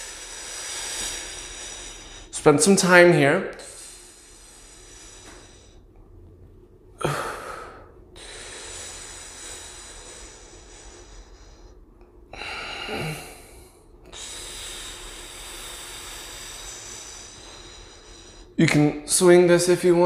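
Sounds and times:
man breathing forcefully: 0:00.0 - 0:02.4, 0:03.6 - 0:05.9, 0:07.0 - 0:18.6.

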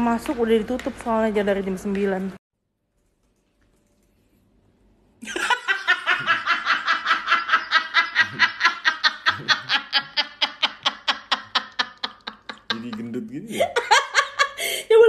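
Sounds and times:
man laughing hard: 0:05.2 - 0:14.6.

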